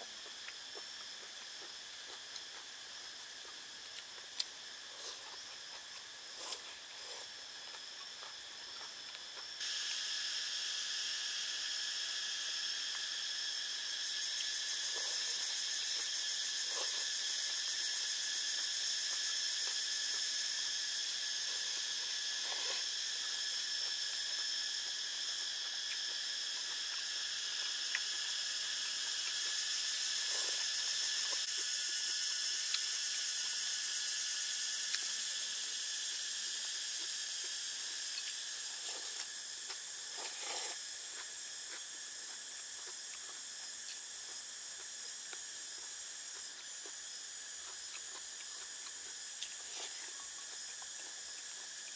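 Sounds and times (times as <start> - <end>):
forest insects droning: 0.0 - 51.9
man eating noodles: 14.4 - 17.6, 38.1 - 43.3.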